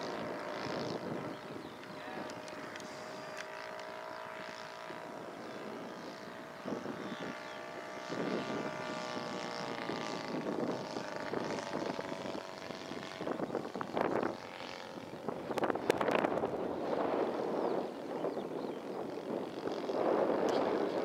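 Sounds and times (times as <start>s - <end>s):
model plane engine drone: 0.0s - 21.0s
wind buffeting microphone: 0.0s - 21.0s.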